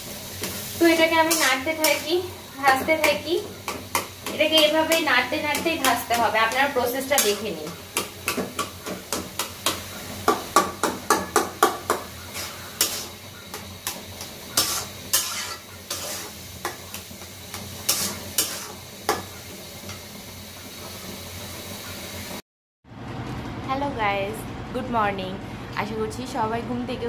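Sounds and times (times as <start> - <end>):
oil sizzling: 0.0 - 22.4
metal spatula scraping a pan: 0.3 - 10.1, 11.2 - 19.4.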